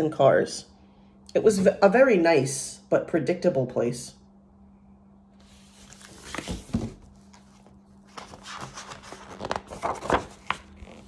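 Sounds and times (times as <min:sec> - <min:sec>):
paper pages rustling: 0:05.4 - 0:11.0.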